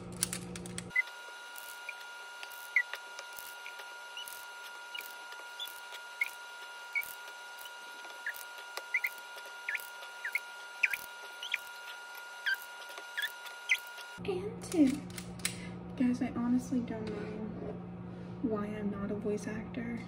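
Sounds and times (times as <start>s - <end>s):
high-pitched hum: 0.0s - 14.8s
short high squeaks: 0.9s - 14.2s.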